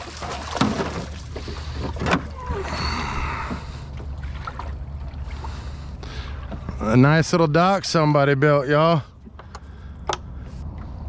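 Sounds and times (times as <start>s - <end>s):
dog splashing through water: 0.0s - 2.3s
water rushing: 0.0s - 7.2s
steady low hum: 1.2s - 11.0s.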